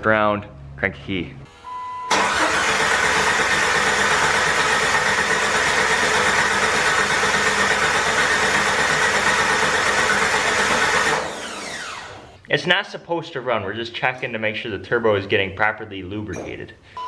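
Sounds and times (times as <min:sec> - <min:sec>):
engine starter motor cranking: 0:02.1 - 0:12.3.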